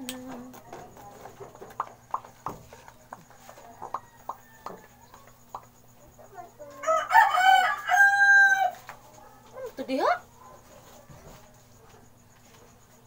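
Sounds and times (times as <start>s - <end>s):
rooster crowing: 3.1s - 5.4s, 6.6s - 9.4s.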